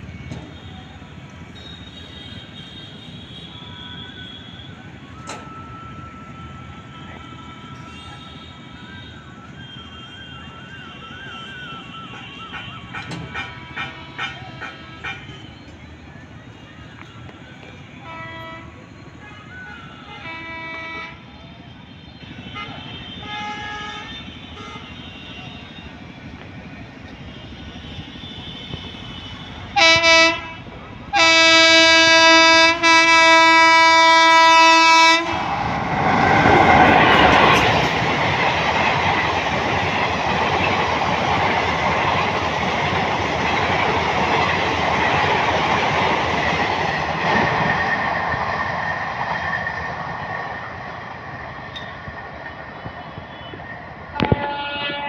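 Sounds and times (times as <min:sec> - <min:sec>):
train wheels rushing on rails: 0:00.0 - 0:55.0
train horn blasts: 0:11.2 - 0:15.5, 0:18.0 - 0:21.3, 0:22.2 - 0:26.0, 0:27.1 - 0:37.9, 0:53.2 - 0:55.0.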